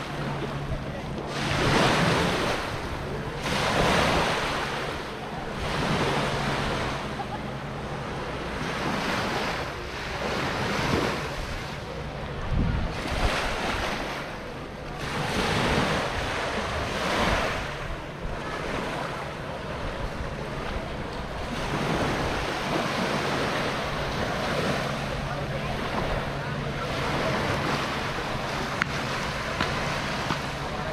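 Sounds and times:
waves washing onto beach: 0.0s - 30.9s
wind on microphone: 12.2s - 18.8s.

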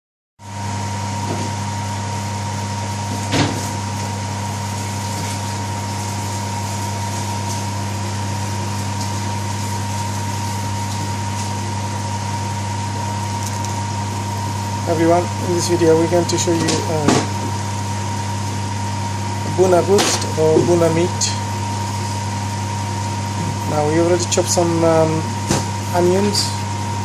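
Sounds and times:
onions frying in oil: 0.4s - 15.4s
machine hum with whine: 0.4s - 27.0s.

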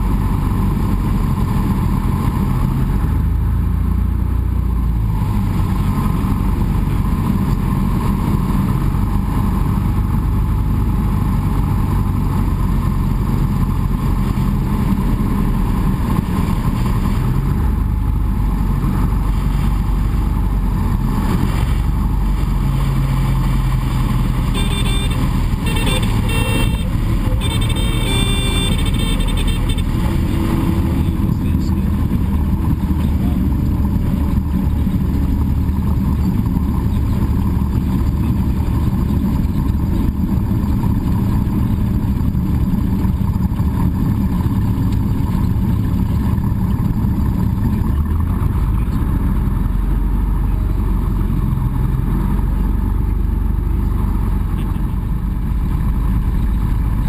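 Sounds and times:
propeller plane engine: 0.0s - 57.0s
high stall warning tone: 24.5s - 31.7s.

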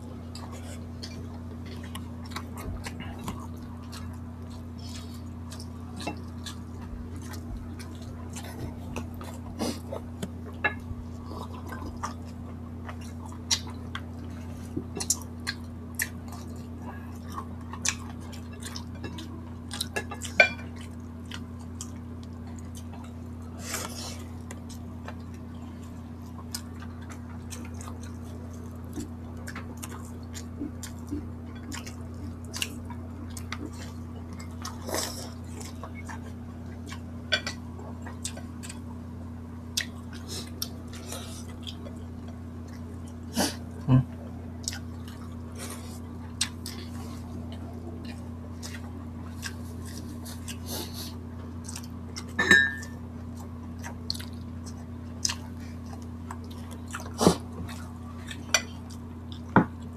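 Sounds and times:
steady low hum: 0.0s - 59.9s
chewing and mouth clicks: 0.2s - 38.9s, 39.7s - 59.9s
plates and cutlery tapping: 52.4s - 52.9s.

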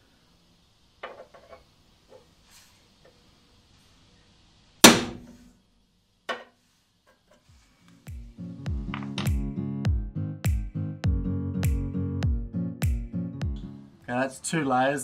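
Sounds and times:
center punch snapping on metal: 4.8s - 5.3s.

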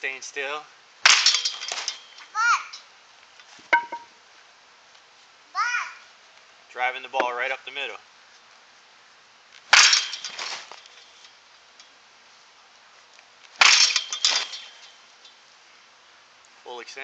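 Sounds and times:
baseball bat hitting ball: 3.7s - 4.1s
soft ball impact: 3.7s - 4.1s.

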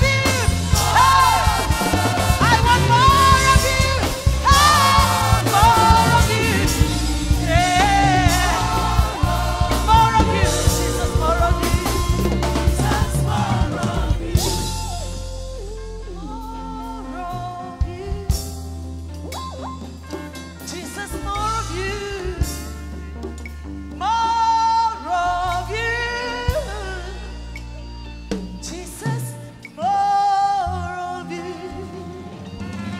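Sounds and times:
gospel band with drum kit: 0.0s - 32.9s
woman singing into a microphone: 2.4s - 18.6s, 24.0s - 27.7s, 28.6s - 32.6s.

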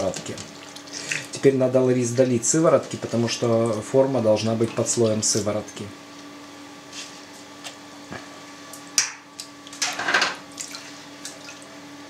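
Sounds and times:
liquid splashing and dripping: 0.0s - 1.4s, 10.5s - 11.7s.

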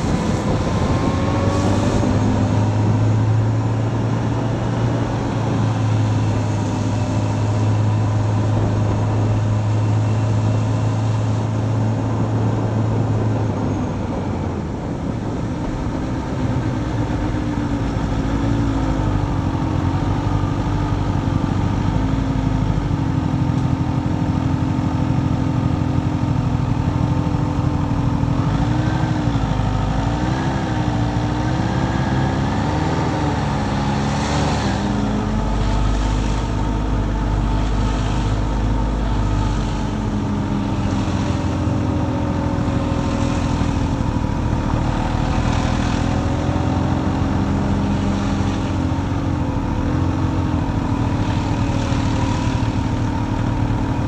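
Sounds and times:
wind rushing: 0.0s - 6.0s
motorcycle engine revving: 0.0s - 54.0s
tyres on wet road: 0.0s - 54.0s.

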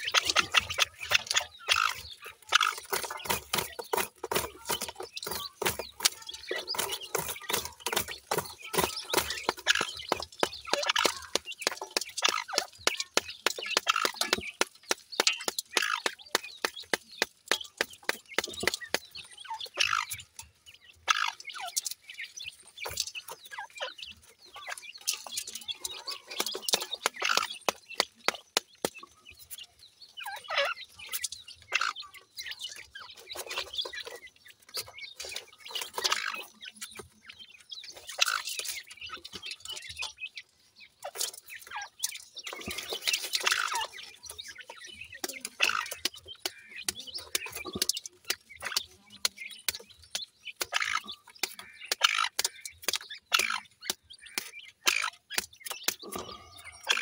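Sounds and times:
chicks clucking and chirping: 0.0s - 57.0s.

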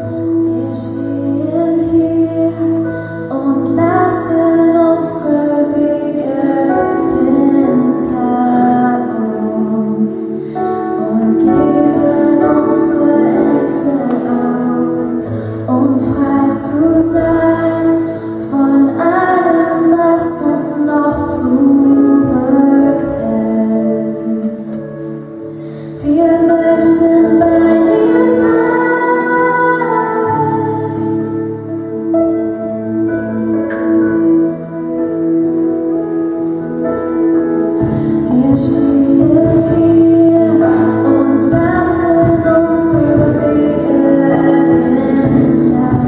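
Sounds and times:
woman singing: 0.0s - 35.5s, 37.8s - 46.0s
slow worship music: 0.0s - 46.0s.

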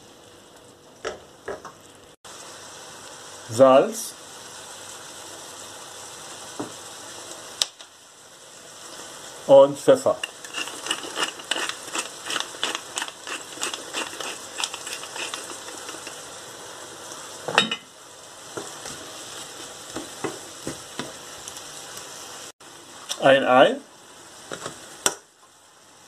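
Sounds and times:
food sizzling in a pan: 0.0s - 26.0s
pepper mill grinding clicks: 10.2s - 16.2s
wooden spatula stirring in a pan: 10.2s - 16.4s, 18.5s - 21.2s.

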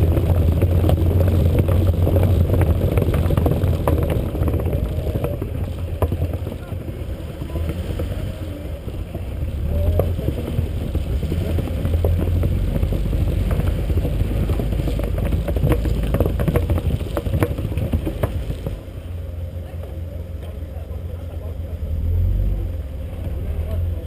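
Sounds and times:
wind on microphone: 0.0s - 19.1s
car engine running: 0.0s - 24.0s.

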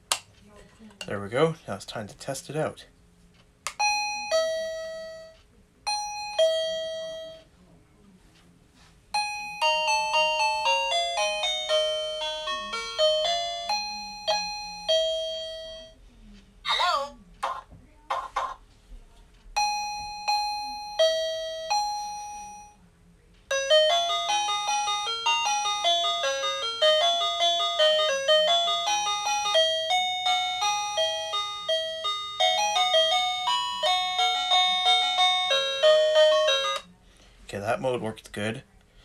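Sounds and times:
electronic doorbell chime: 3.8s - 7.5s, 9.2s - 16.0s, 19.6s - 22.8s, 23.5s - 36.9s.

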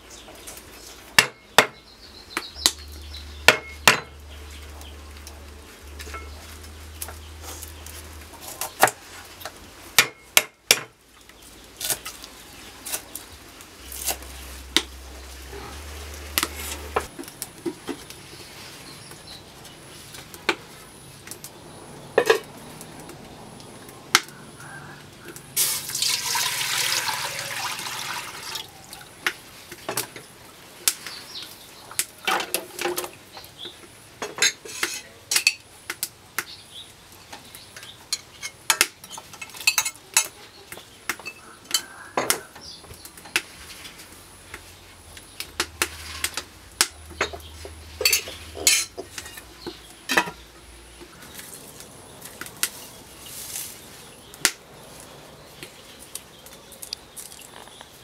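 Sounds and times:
water pouring: 25.6s - 29.0s.

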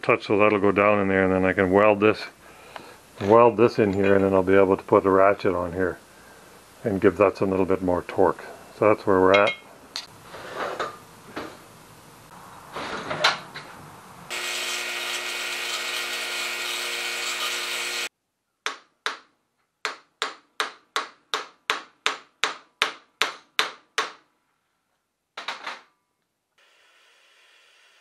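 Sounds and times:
bench grinder grinding steel: 14.3s - 18.1s.

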